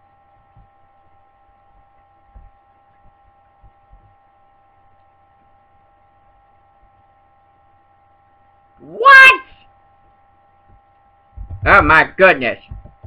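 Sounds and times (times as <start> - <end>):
electrical hum: 0.0 - 13.0
faint high whine: 0.0 - 13.0
soft low thumps: 10.6 - 13.0.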